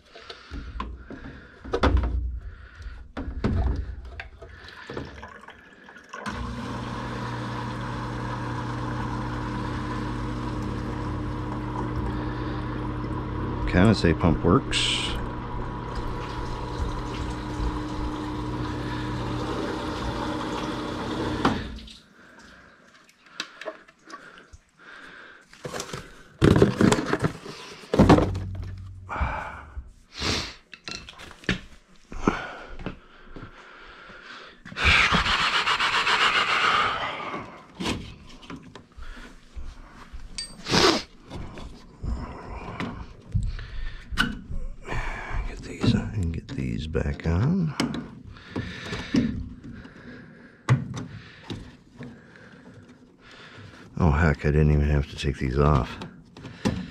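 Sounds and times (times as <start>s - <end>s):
condensate pump humming: 6.1s - 22.0s
clunks and clatter of tools: 25.6s - 29.0s.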